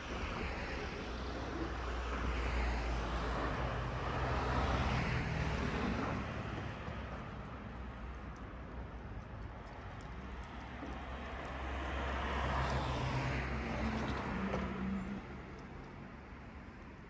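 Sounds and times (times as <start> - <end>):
cars driving past: 0.0 - 16.1.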